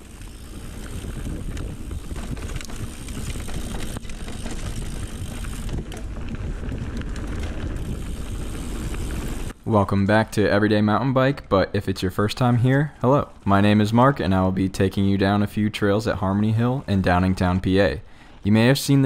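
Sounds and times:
wind on microphone: 0.0 - 9.5
bike tyre riding noise: 0.0 - 10.7
sharp clicks and rattles: 0.1 - 10.2.

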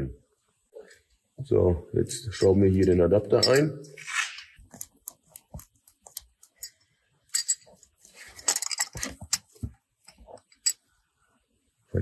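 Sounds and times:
clicks and metallic clinks: 2.8 - 3.8, 6.0 - 7.8.

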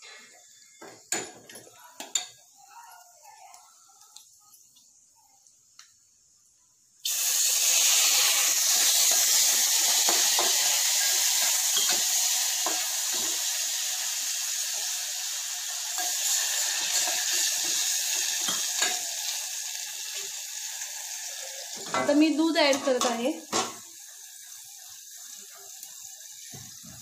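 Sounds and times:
water sizzling in hot oil: 6.9 - 27.0.

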